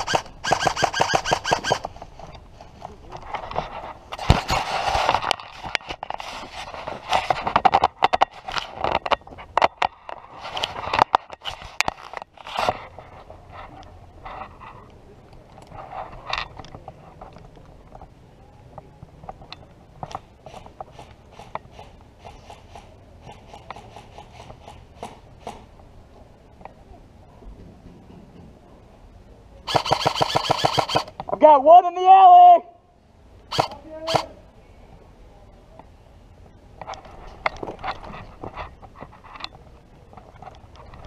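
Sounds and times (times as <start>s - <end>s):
scraping and rubbing on camera: 0.0s - 14.9s, 15.7s - 17.3s, 36.8s - 41.0s.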